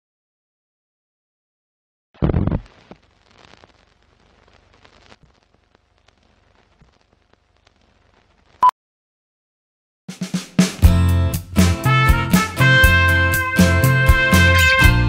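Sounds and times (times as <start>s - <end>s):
faint ticks and crackle: 2.2s - 8.6s.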